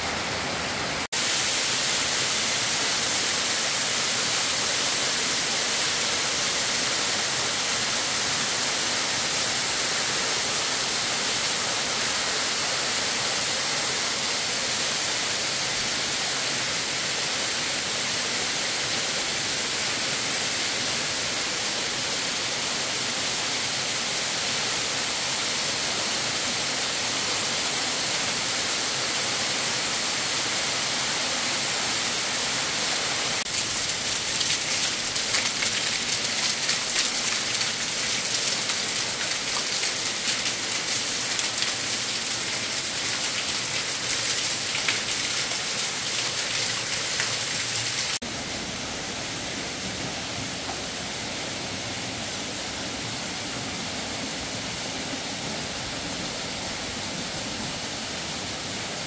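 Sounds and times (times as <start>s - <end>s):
waterfall splashing onto stones: 33.3s - 48.2s.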